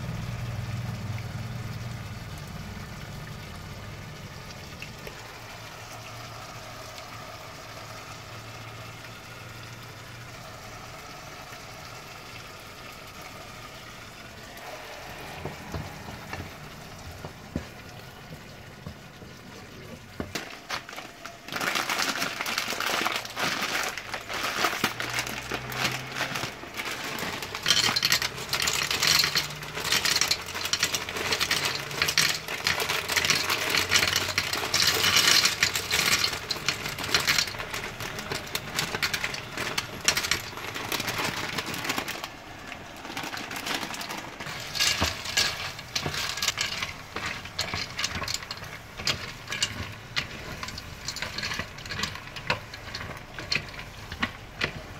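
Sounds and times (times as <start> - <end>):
wooden spoon stirring pasta: 10.3 - 54.9
plastic packet crinkling: 12.4 - 54.9
dry pasta clattering into pot: 13.1 - 54.9.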